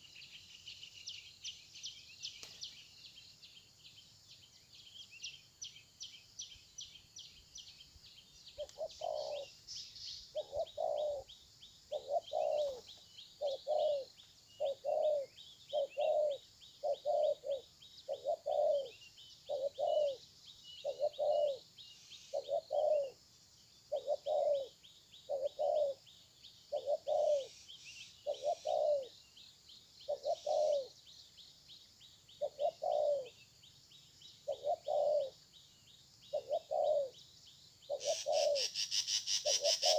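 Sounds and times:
dove cooing: 0:08.6 - 0:09.6, 0:10.3 - 0:11.3, 0:11.9 - 0:20.2, 0:20.8 - 0:23.2, 0:23.9 - 0:26.0, 0:26.7 - 0:27.6, 0:28.2 - 0:29.2, 0:30.1 - 0:31.0, 0:32.4 - 0:33.4, 0:34.4 - 0:35.4, 0:36.3 - 0:37.2, 0:37.9 - 0:39.9.

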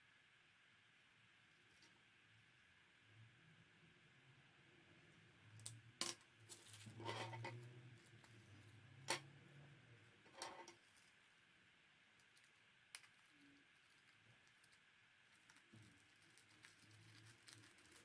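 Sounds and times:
paper rustling: 0:15.4 - 0:18.0.

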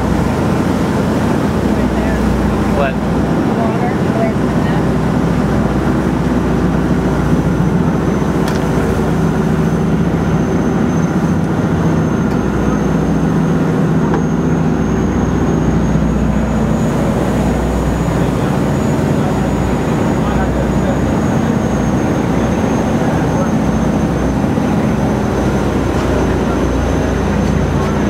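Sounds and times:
boat engines droning: 0:00.0 - 0:28.0
rush of wake and wind: 0:00.0 - 0:28.0.

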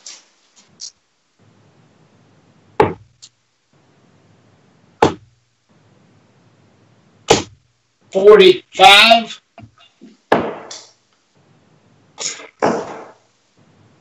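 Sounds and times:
darts hitting a bristle dartboard: 0:02.8 - 0:03.2, 0:05.0 - 0:05.3, 0:07.3 - 0:07.6, 0:10.3 - 0:10.9, 0:12.3 - 0:13.2.

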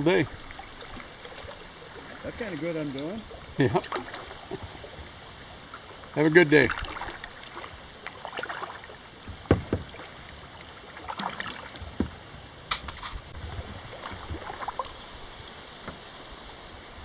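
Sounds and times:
moving water rushing: 0:00.0 - 0:17.0
paddle splashing in water: 0:00.0 - 0:17.0
sharp knocks: 0:09.3 - 0:09.9.

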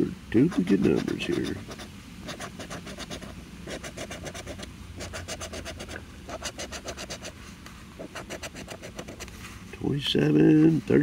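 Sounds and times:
scratching lottery ticket coating: 0:00.4 - 0:07.4, 0:08.0 - 0:09.3.

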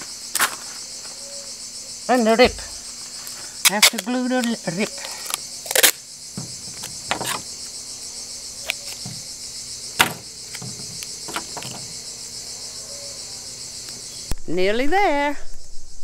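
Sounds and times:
insect chorus chirring: 0:00.0 - 0:16.0
scissors cutting tape: 0:03.7 - 0:06.0.

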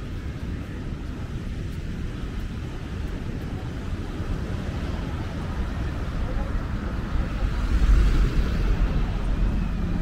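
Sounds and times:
steady outdoor hiss: 0:00.0 - 0:10.0
wind buffeting microphone: 0:00.0 - 0:10.0.

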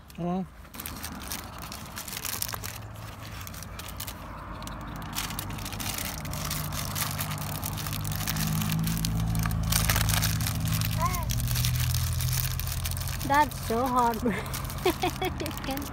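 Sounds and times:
paper wrapper crinkling: 0:00.7 - 0:15.9.

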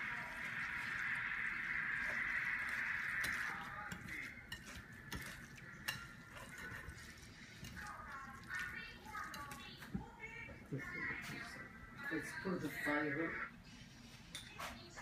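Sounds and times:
whisk swishing in bowl: 0:00.0 - 0:09.4.

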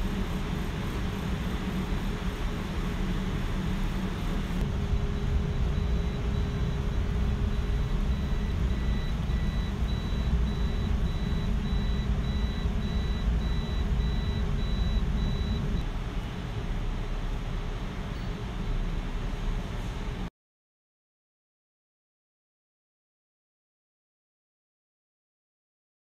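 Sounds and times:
low rumble of room noise: 0:00.0 - 0:20.3
lower beep: 0:04.8 - 0:15.8
electronic alarm beeping: 0:04.9 - 0:15.8.

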